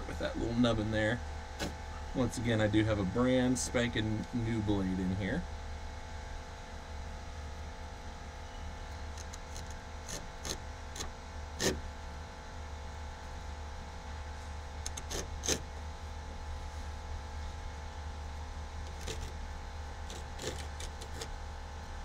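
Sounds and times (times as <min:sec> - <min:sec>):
steady low hum: 0:00.0 - 0:22.0
utility knife cutting: 0:09.2 - 0:11.8, 0:14.9 - 0:15.6, 0:18.9 - 0:19.3, 0:20.1 - 0:21.3.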